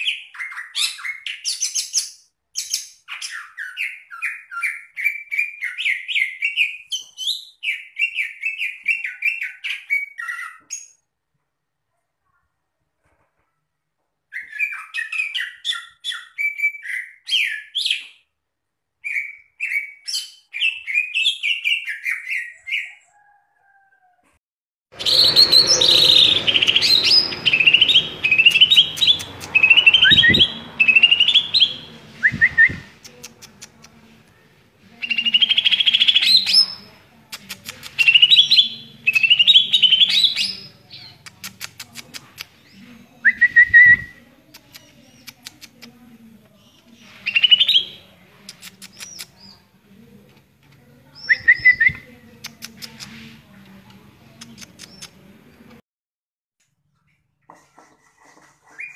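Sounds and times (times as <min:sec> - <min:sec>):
bird singing chirps and whistles: 0:25.0 - 0:32.9.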